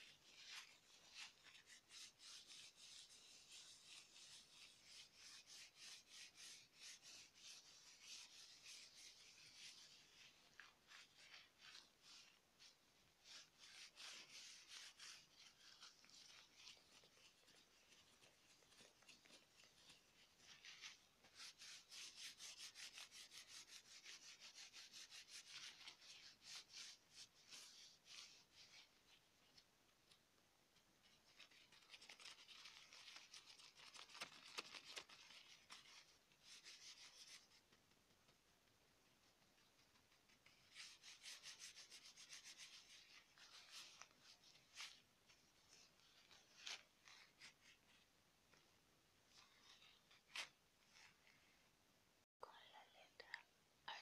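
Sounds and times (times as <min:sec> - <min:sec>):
gloved hands rubbing together: 0:00.0 - 0:30.2, 0:31.0 - 0:51.7.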